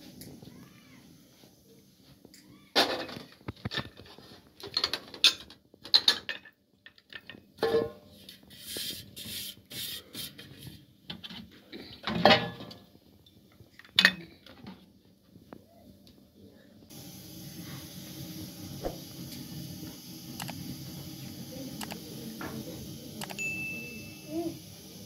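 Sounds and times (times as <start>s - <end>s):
metal pots and dishes clattering: 2.8s - 8.1s, 11.2s - 12.9s, 13.8s - 14.8s.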